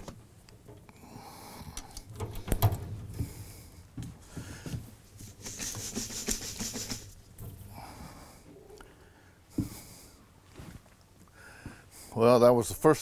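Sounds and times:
metal feeder knocking and clanking: 2.1s - 3.3s.

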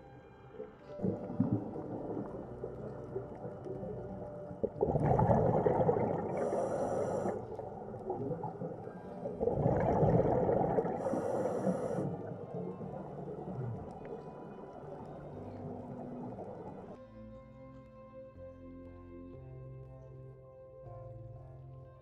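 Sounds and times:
diver exhaling bubbles: 4.6s - 14.1s
regulator hiss: 6.4s - 7.5s, 11.0s - 12.4s.

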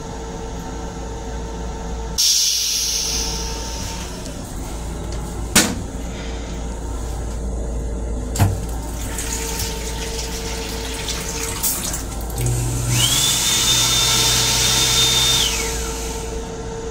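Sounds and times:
train running hum: 0.0s - 13.2s
flush motor hum: 0.0s - 16.9s
toilet flushing with whine: 1.6s - 16.9s
faucet running into basin: 8.4s - 14.8s.

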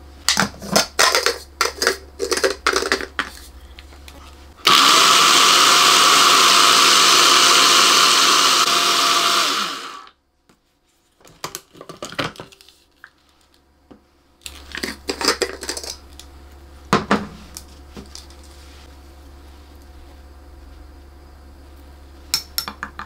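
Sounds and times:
blender running: 4.6s - 10.1s.

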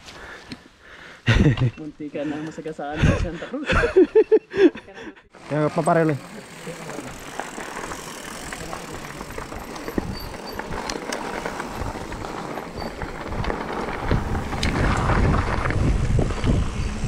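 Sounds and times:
bike clicks and rattles: 5.4s - 17.0s
bike tyres on loose gravel: 5.4s - 17.0s
wind on microphone: 9.9s - 17.0s.

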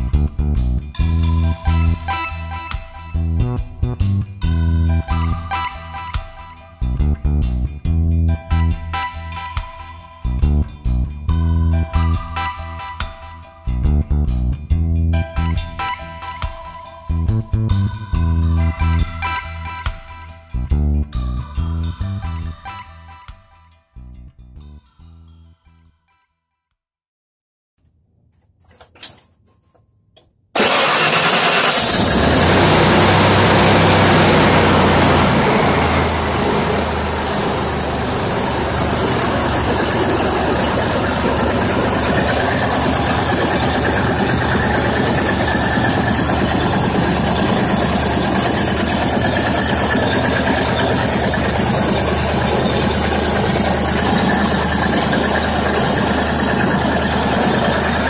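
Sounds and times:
truck engine starting and idling: 30.6s - 58.0s.

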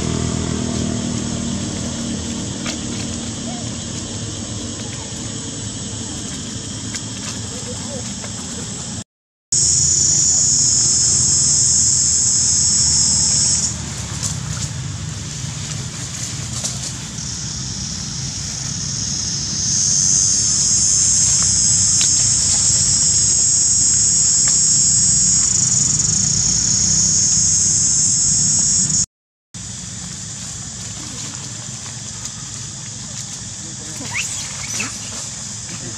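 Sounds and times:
high-pitched insect drone: 9.6s - 13.8s, 16.6s - 29.1s, 33.3s - 35.9s.

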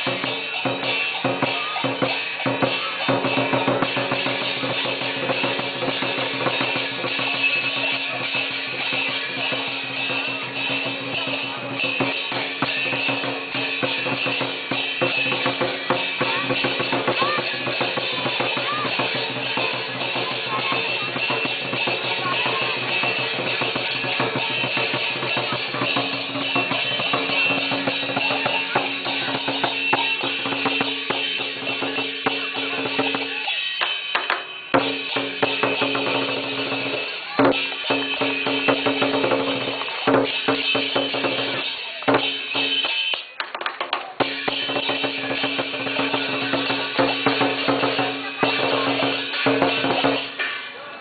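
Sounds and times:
drum beaten rapidly: 0.0s - 50.9s
cymbals clashing: 0.0s - 51.0s.

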